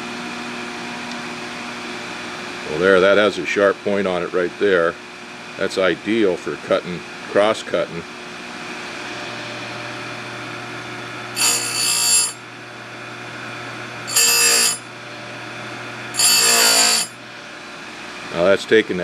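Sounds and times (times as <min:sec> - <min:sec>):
grinder motor hum: 0:00.0 - 0:19.0
grinding wheel on saw chain: 0:11.4 - 0:12.4, 0:14.1 - 0:14.9, 0:16.1 - 0:17.2.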